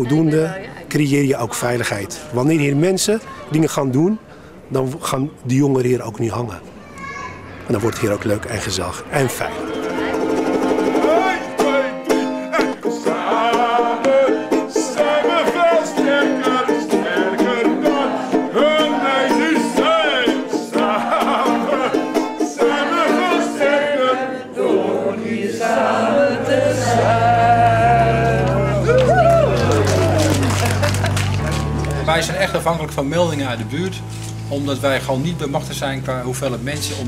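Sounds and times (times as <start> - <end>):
ukulele strumming: 9.6 - 24.0
person singing: 10.8 - 24.4, 25.6 - 30.5.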